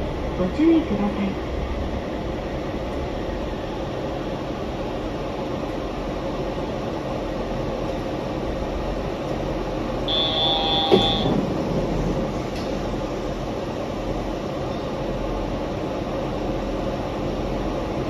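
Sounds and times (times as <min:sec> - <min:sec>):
train running with rumble and hiss: 0:00.0 - 0:18.0
brief high-pitched tone: 0:10.1 - 0:11.4.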